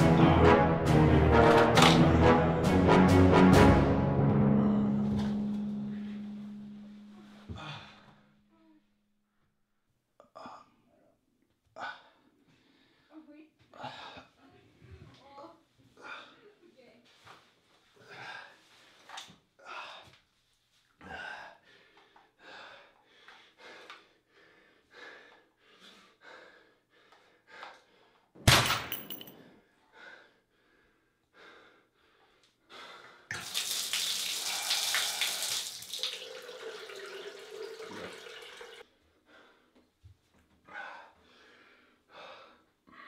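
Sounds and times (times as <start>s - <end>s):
heavy breathing: 4.4s - 8.8s, 21.0s - 28.3s, 40.6s - 43.0s
water running and splashing: 33.3s - 38.8s.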